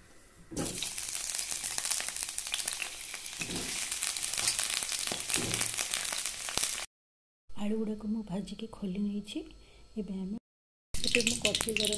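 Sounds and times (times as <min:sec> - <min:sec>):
potatoes frying in oil: 0:00.6 - 0:06.9, 0:11.0 - 0:11.9.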